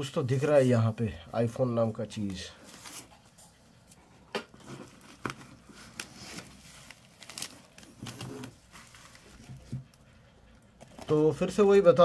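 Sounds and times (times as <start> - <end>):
bubble wrap crinkling: 4.8 - 9.5.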